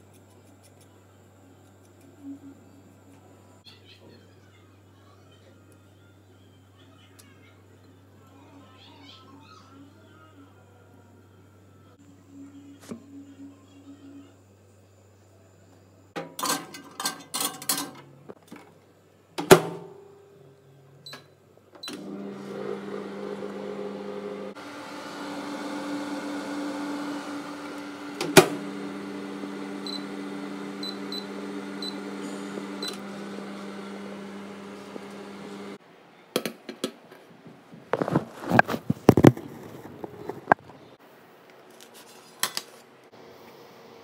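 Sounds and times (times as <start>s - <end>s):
microwave oven humming: 19.5s - 35.8s.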